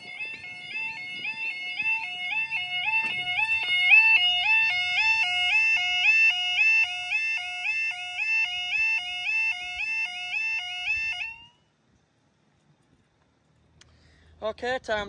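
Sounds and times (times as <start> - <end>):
level crossing alarm: 0.0 - 11.7.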